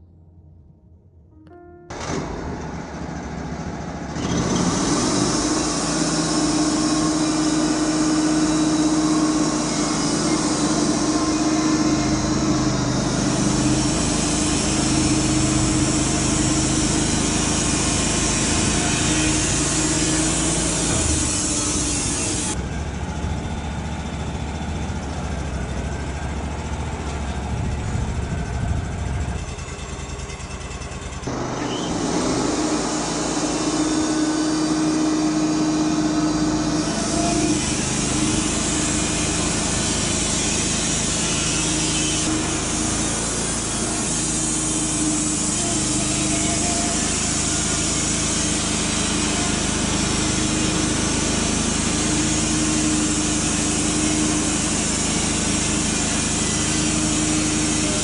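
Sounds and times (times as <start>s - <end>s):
sawmill engine running: 1.9s - 58.0s
band blade hissing through log: 4.5s - 22.6s, 31.3s - 58.0s.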